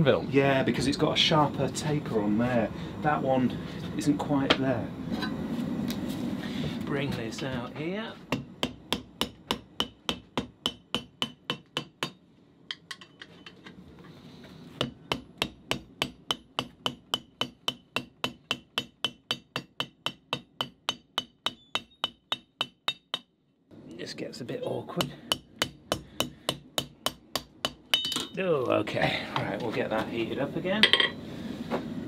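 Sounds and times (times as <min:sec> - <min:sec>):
hammer striking steel on anvil: 0:08.3 - 0:13.2, 0:14.8 - 0:23.3, 0:25.0 - 0:28.4.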